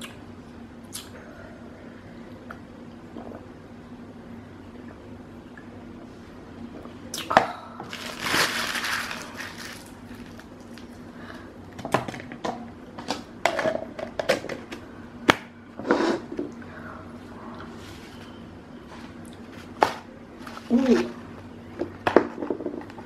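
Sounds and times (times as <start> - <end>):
food packaging crinkling: 7.9 - 11.0.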